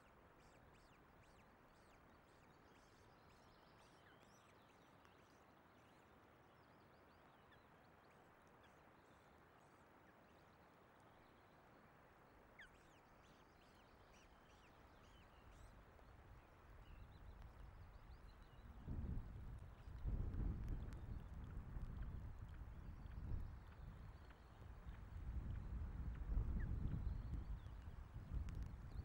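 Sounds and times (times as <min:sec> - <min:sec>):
wind and rain hiss: 0:14.5 - 0:29.0.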